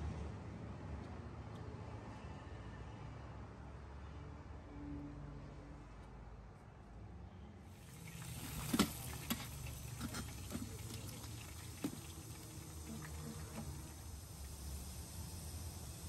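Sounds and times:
low steady hum: 7.7 - 16.0.

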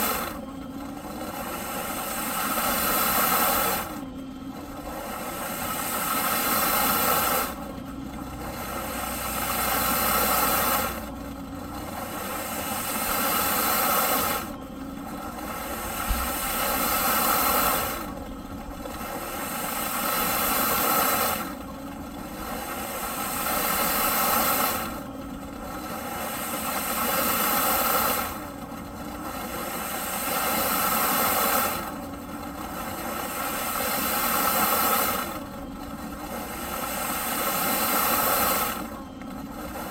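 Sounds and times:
vacuum cleaner rushing hiss: 0.0 - 0.4, 1.4 - 4.0, 5.0 - 7.6, 8.9 - 11.0, 12.2 - 14.6, 15.4 - 18.2, 19.2 - 21.6, 36.5 - 38.9.

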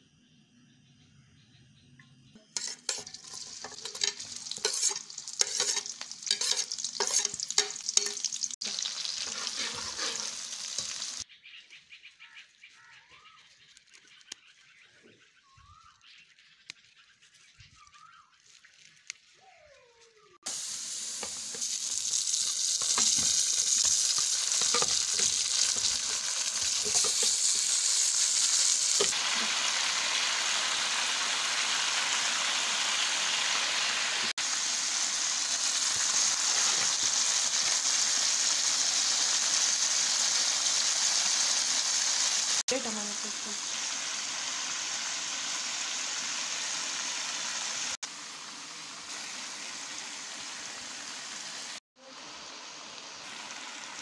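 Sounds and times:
faint chirps: 0.0 - 4.4, 9.2 - 20.4
chicken sizzling in oil: 2.4 - 11.3, 20.4 - 54.0
food crackling in hot oil: 2.4 - 11.3, 20.4 - 54.0.

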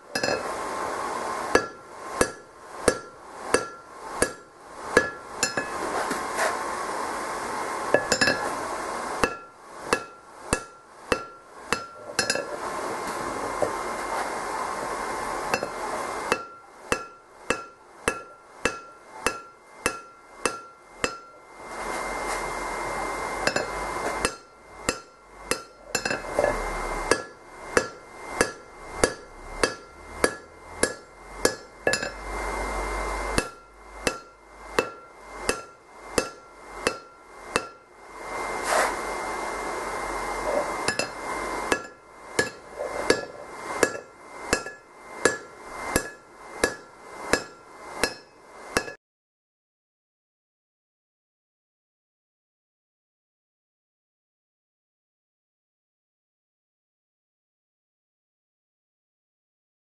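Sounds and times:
hammer striking metal on anvil: 0.1 - 0.5, 1.5 - 5.8, 8.0 - 8.5, 9.2 - 12.5, 15.5 - 21.4, 23.4 - 32.3, 33.3 - 37.9, 40.9 - 49.0.

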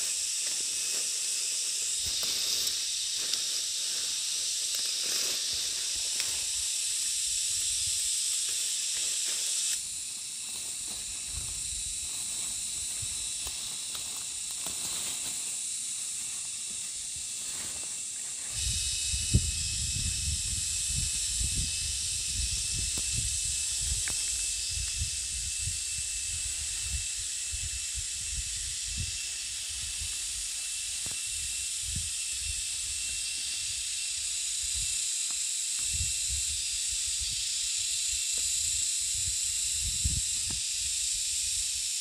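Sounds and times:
insects chorus: 0.0 - 42.0.

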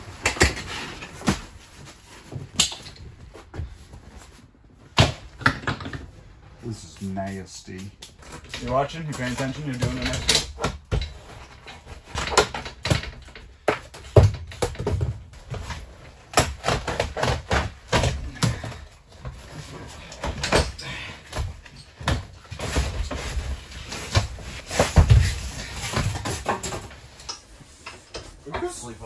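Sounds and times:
clanks and clatter of seat: 8.0 - 28.9.

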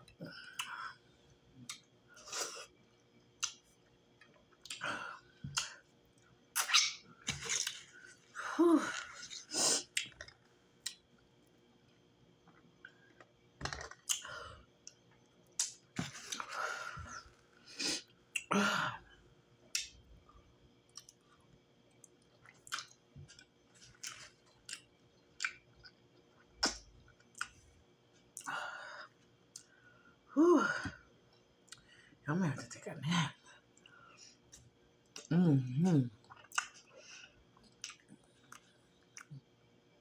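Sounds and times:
person chewing with lip smacks: 22.0 - 27.6, 36.2 - 36.9, 37.6 - 39.4.

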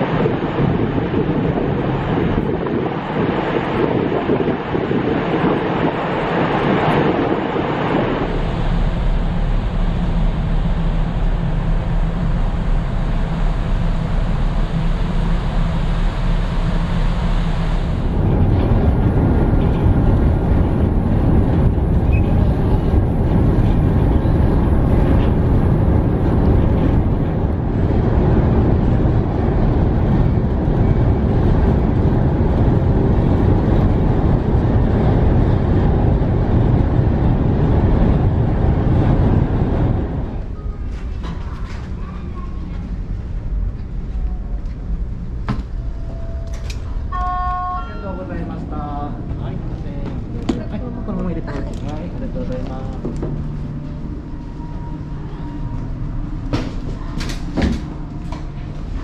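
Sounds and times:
wind buffeting microphone: 0.0 - 47.1
ferry engines humming: 0.0 - 59.0.

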